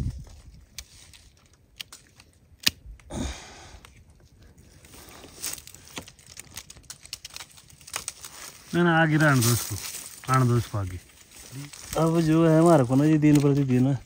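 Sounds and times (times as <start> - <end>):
branches rustling: 0.0 - 14.0
pruning shears snipping: 13.0 - 13.7.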